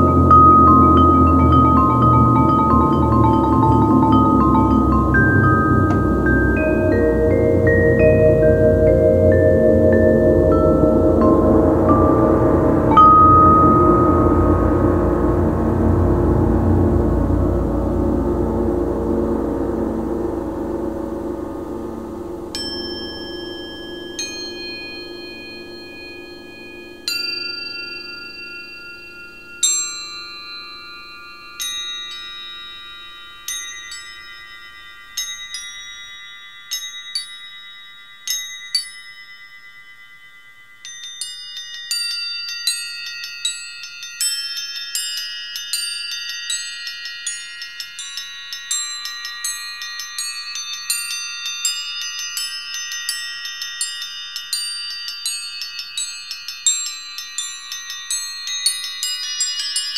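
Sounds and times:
low gong-like tone: 0.0 - 29.5
struck bell-like notes: 0.0 - 43.2.

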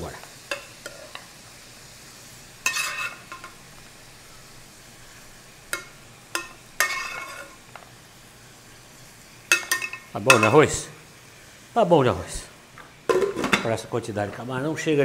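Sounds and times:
sizzling and scraping bursts: 0.0 - 14.4
shrimp sizzling in a wok: 0.0 - 15.0
spoon knocking against pans: 5.7 - 7.5, 9.5 - 10.6, 13.1 - 13.7.

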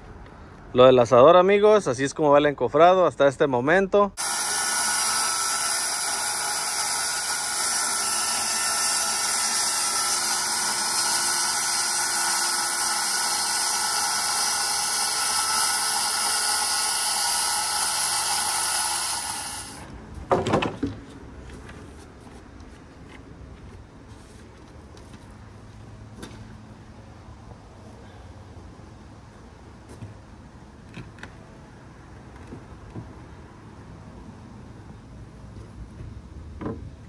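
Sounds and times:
circular saw cutting: 4.2 - 19.9.

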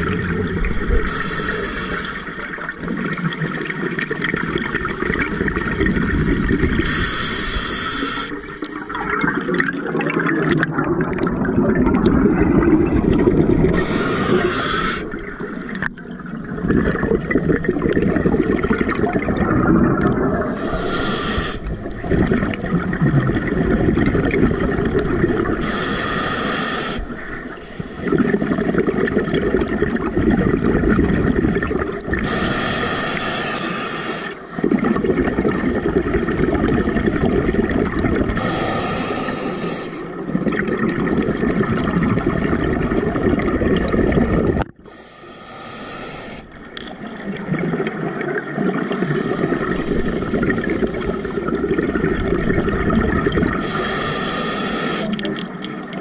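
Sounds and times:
exhaled bubbles rumbling: 0.0 - 7.2, 8.3 - 25.7, 27.0 - 32.4, 34.5 - 44.9, 46.5 - 53.8
regulator inhale hiss: 0.9 - 2.5, 6.8 - 8.6, 13.8 - 15.2, 20.6 - 22.0, 25.6 - 28.1, 32.2 - 34.5, 38.4 - 40.2, 44.8 - 46.7, 53.6 - 55.2.

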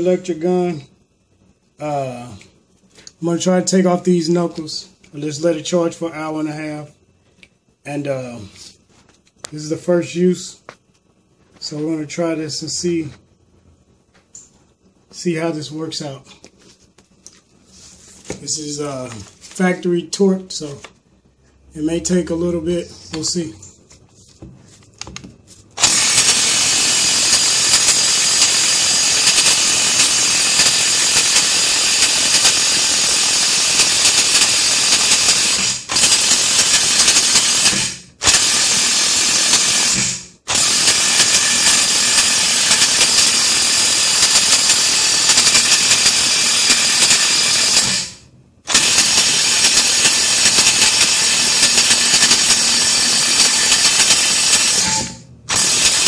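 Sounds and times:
impact wrench hammering: 25.8 - 56.0.

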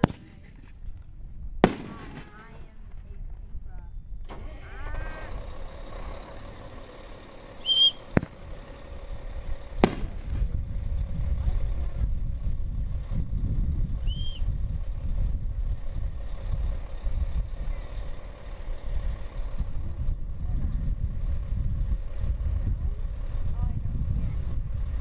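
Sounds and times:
firework bangs: 0.0 - 0.8, 1.6 - 3.1, 7.7 - 8.5, 9.8 - 10.5
low rumble: 0.0 - 25.0
short high chirp: 7.6 - 8.0.

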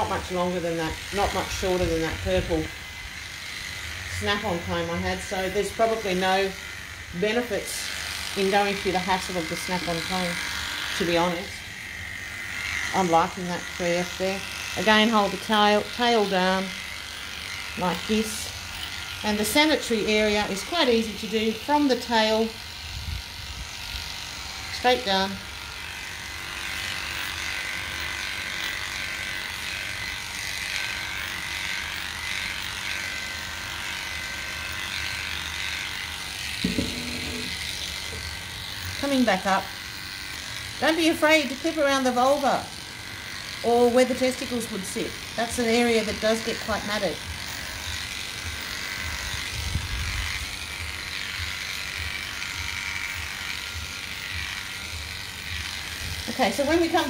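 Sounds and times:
electric clippers running: 0.0 - 57.0.

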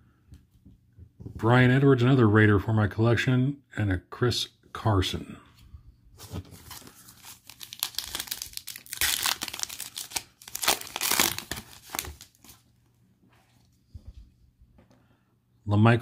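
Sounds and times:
foil wrapper tearing and crinkling: 6.6 - 12.6.

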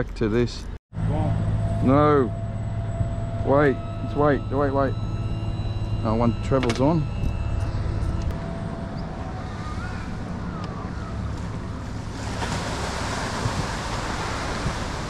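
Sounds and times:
low steady hum: 1.0 - 15.0
water lapping against boat hull: 10.8 - 15.0.

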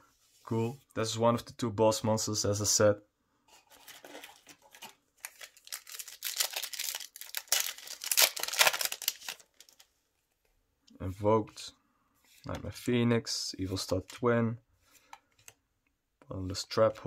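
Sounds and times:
foil wrapper tearing and crinkling: 4.7 - 9.8.

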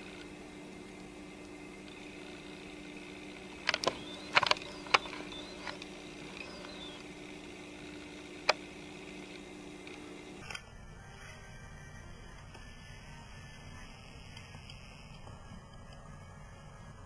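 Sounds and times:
steady low hum: 0.0 - 17.0
sharp clicks: 3.3 - 10.6.

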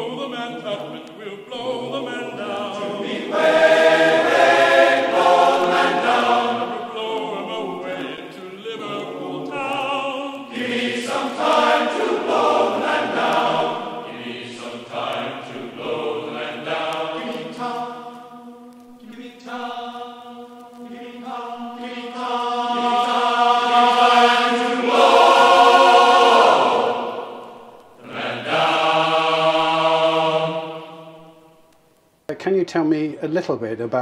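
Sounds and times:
group singing a sea shanty: 0.0 - 31.8.

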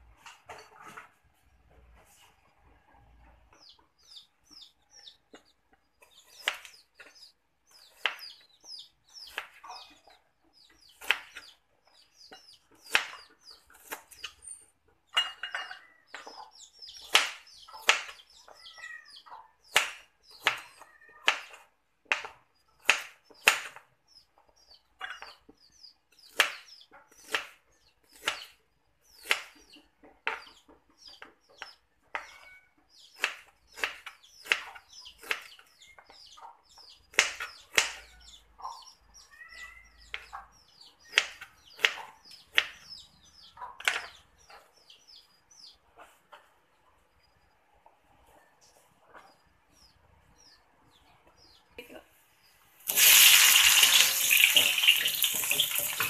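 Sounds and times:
knife chopping on cutting board: 21.3 - 23.8.

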